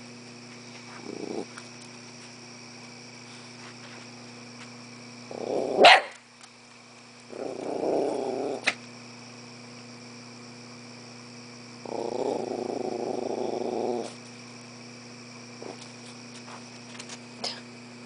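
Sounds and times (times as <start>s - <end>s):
dog growling low: 0.9s - 1.7s, 5.3s - 5.8s, 7.3s - 8.7s, 11.8s - 14.2s.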